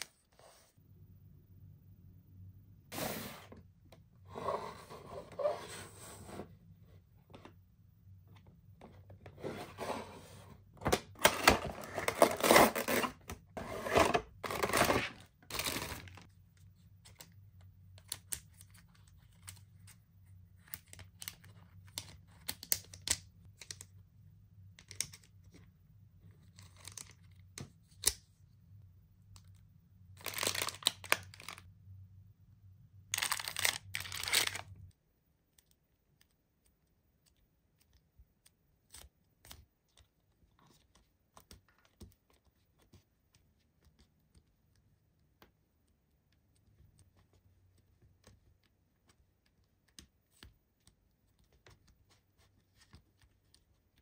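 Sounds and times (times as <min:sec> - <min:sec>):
cardboard and plastic packaging rustling: 0:09.3 - 0:16.3.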